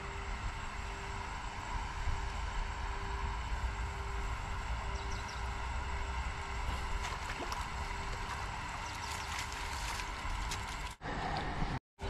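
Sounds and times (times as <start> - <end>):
low outdoor rumble: 0.0 - 11.8
faint water splashes and drips: 6.7 - 11.0
net hauled out of water: 6.7 - 11.0.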